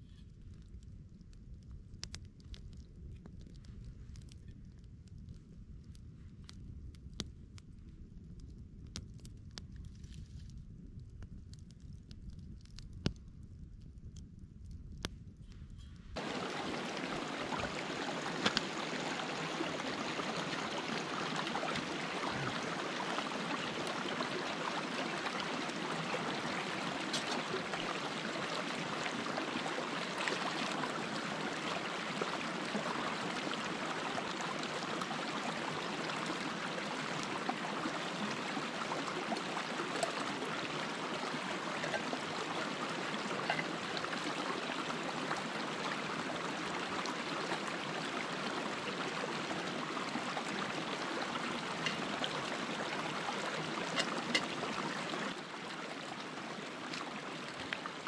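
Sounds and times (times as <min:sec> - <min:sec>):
stream running over stones: 0:16.2 - 0:58.0.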